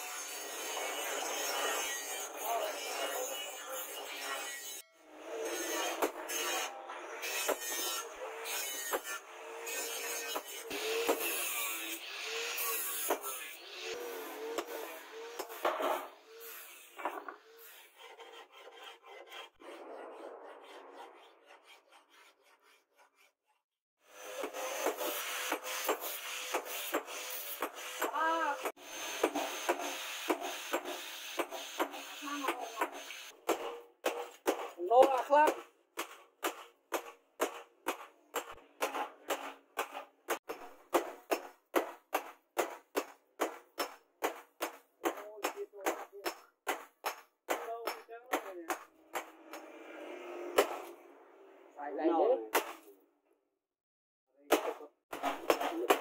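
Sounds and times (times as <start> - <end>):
tool rasping across steel blade: 5.4 - 40.5.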